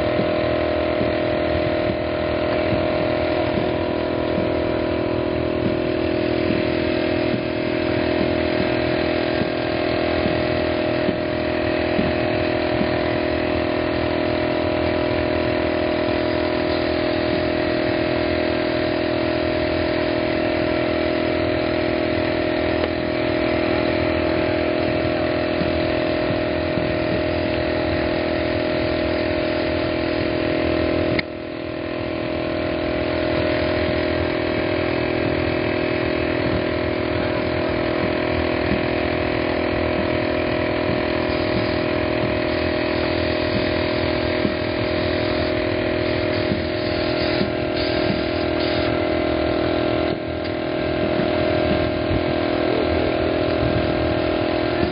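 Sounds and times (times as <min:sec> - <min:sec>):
engine droning: 0:00.0 - 0:54.9.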